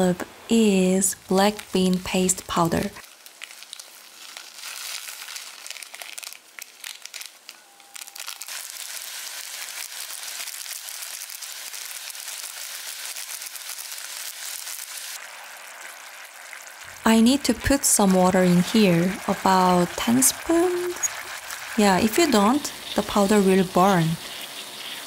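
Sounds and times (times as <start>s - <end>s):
foil packets crinkling: 3.0s - 15.2s
steady high hiss: 16.8s - 25.0s.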